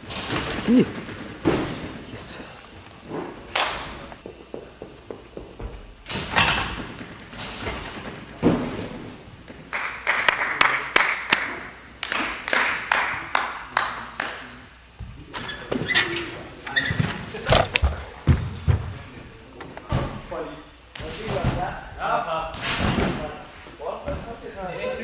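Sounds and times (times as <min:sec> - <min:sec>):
thuds and knocks in gym hall: 0:00.0 - 0:02.1, 0:03.2 - 0:09.7, 0:17.0 - 0:19.2, 0:19.9 - 0:20.4, 0:21.0 - 0:23.4, 0:24.0 - 0:24.6.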